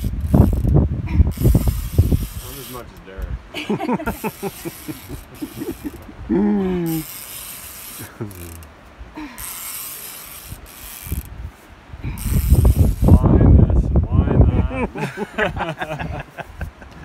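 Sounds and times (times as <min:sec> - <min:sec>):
fishing reel ratcheting: 0:00.0 - 0:02.9, 0:04.2 - 0:06.1, 0:06.8 - 0:08.7, 0:09.3 - 0:11.4, 0:12.1 - 0:13.2.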